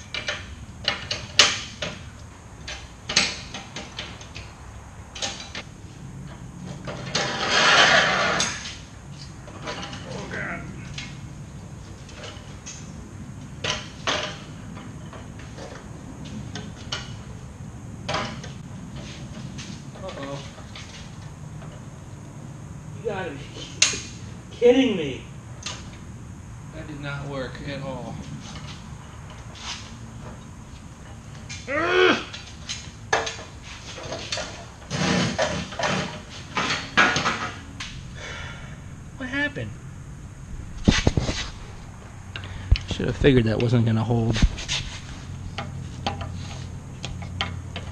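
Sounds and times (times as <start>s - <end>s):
metal clanks and knocks: 0.0s - 4.4s, 9.4s - 10.2s, 13.6s - 15.8s, 32.4s - 38.0s, 45.5s - 47.9s
steady low hum: 0.0s - 47.9s
metal stand clanking and scraping: 6.3s - 10.3s, 32.3s - 38.0s.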